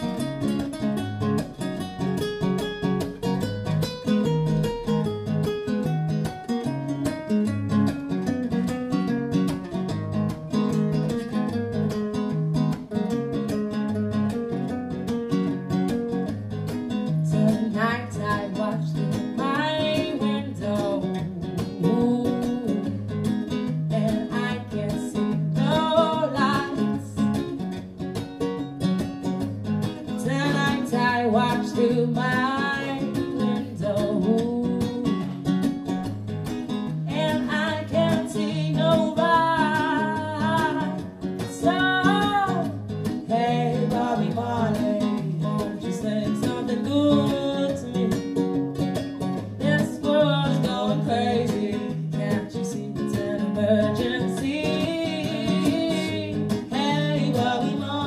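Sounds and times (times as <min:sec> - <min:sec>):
acoustic guitars strummed: 0:00.0 - 0:58.0
woman singing: 0:16.8 - 0:27.8, 0:29.9 - 0:35.9, 0:36.7 - 0:58.0.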